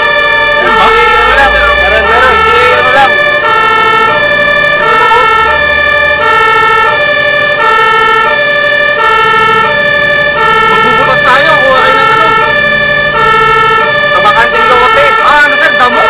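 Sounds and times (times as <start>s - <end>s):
engine running: 0.0s - 16.0s
fire engine electronic siren: 0.0s - 16.0s.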